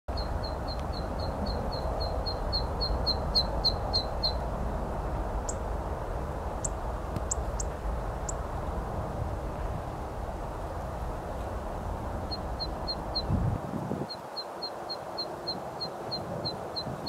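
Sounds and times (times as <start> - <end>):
bird chirps: 0.1 - 4.4
steady low rumble: 0.1 - 13.9.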